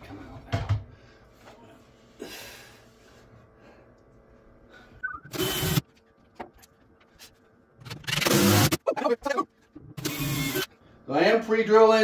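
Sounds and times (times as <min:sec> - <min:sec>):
small electric motor whirring: 0:05.3 - 0:05.8, 0:10.0 - 0:10.7.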